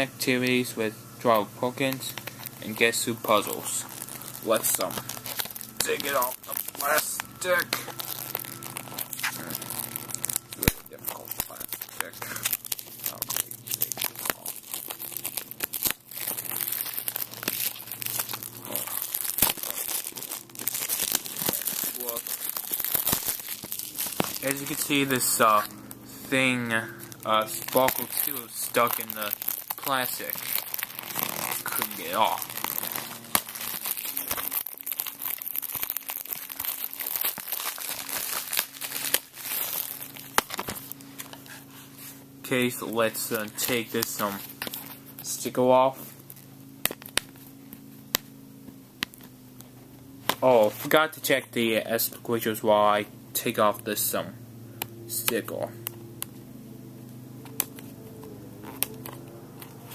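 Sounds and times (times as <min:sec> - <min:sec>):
plastic shrink-wrap crinkling: 0:01.3 - 0:48.3, 0:57.1 - 0:59.9.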